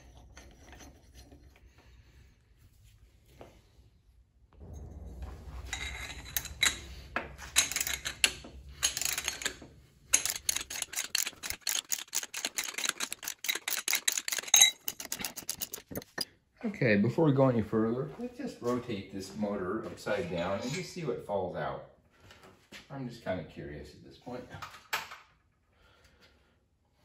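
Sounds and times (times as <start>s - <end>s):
metal scraping and clanks: 0.0s - 2.0s, 4.6s - 16.3s, 20.0s - 21.0s
socket ratchet clicking: 10.2s - 16.2s.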